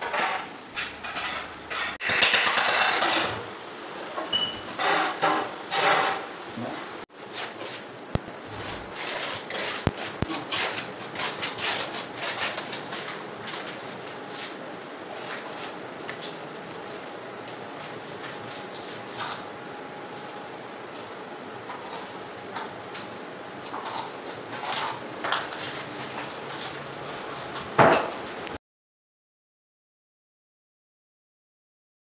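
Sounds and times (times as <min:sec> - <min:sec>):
tool clinks: 0:04.3 - 0:04.7
hand tools scraping cement: 0:08.5 - 0:15.8, 0:20.2 - 0:26.8.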